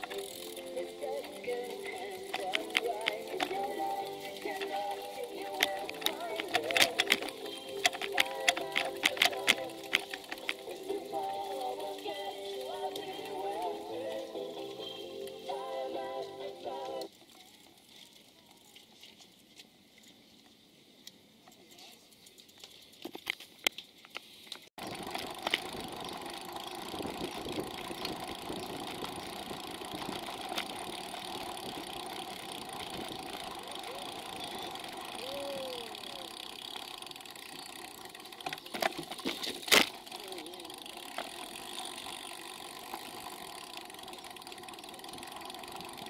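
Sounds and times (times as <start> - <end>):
background music: 0.0 - 17.1
wind and tyre rumble: 24.8 - 40.2.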